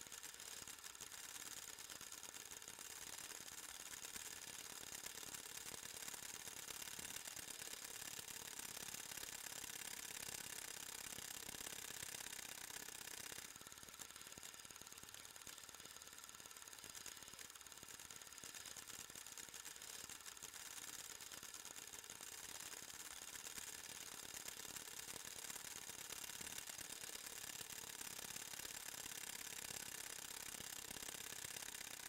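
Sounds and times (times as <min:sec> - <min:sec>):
film projector whirring and clicking: 0:00.0 - 0:32.0.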